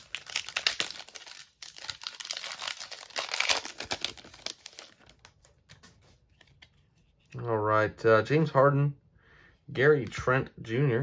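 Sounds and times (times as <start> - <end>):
foil wrapper crinkling and tearing: 0.0 - 5.6.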